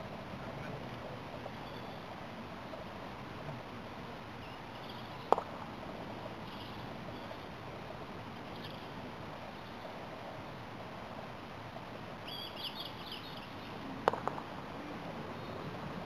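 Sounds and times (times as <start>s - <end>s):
croquet mallet striking ball: 5.3s - 5.6s, 14.0s - 14.5s.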